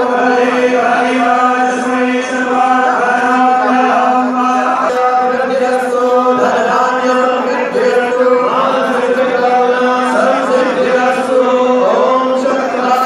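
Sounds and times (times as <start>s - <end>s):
hymn chanted and sung: 0.0s - 13.0s.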